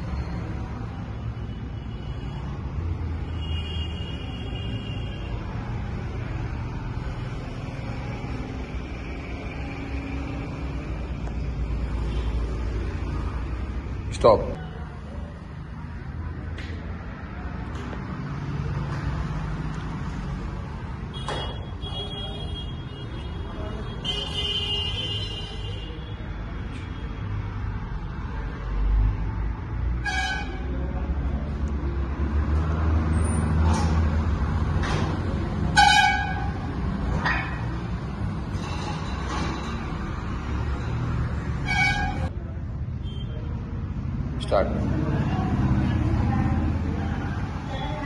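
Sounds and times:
car horns honking: 21.0 - 26.0, 30.0 - 30.7, 35.6 - 37.6, 41.6 - 42.3.

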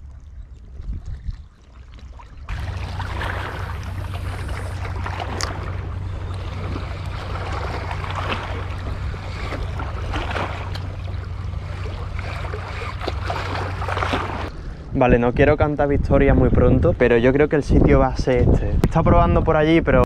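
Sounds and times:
wind rumble on microphone: 0.0 - 20.0
waves splashing against rocks: 2.5 - 14.5.

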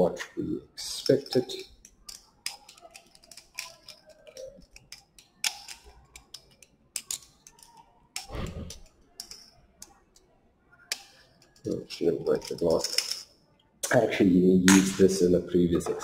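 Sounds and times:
glassware clicking and tapping: 1.1 - 10.2.

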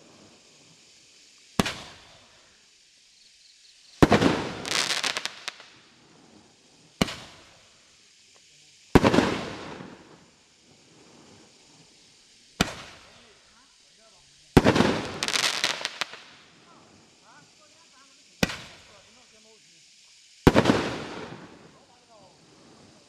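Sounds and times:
roman candle shots: 0.1 - 2.4, 4.0 - 23.0
sharp pops: 1.4 - 2.2, 7.0 - 7.6, 12.6 - 13.2, 18.4 - 19.0.

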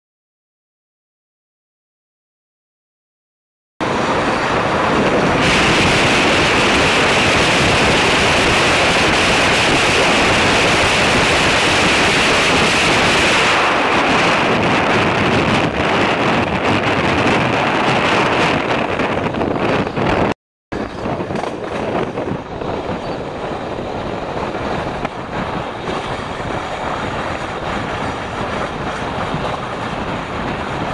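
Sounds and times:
train wheels on rails: 3.8 - 15.2, 20.8 - 30.9
wind buffeting microphone: 3.8 - 30.9.

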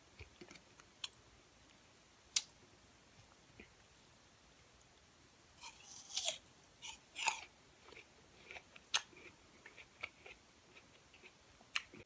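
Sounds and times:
apple crunching when chewed: 5.6 - 12.0.

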